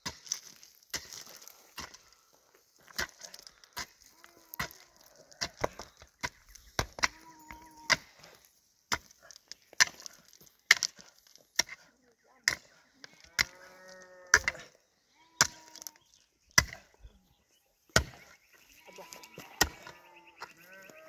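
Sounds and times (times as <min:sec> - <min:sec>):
pickaxe striking stony ground: 0:00.0 - 0:02.1, 0:02.8 - 0:13.7, 0:14.3 - 0:14.8, 0:15.4 - 0:15.9, 0:16.5 - 0:17.0, 0:17.9 - 0:18.4, 0:19.5 - 0:20.6.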